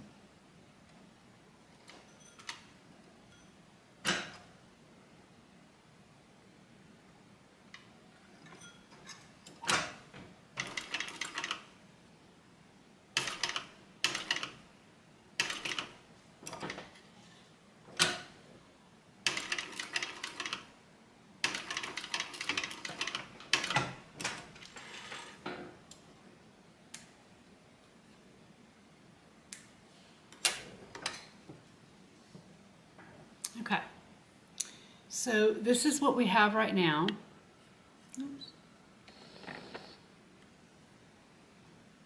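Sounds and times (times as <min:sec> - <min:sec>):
sewing machine stitching leather: 0:10.6 - 0:11.6, 0:19.3 - 0:20.7, 0:21.4 - 0:25.2.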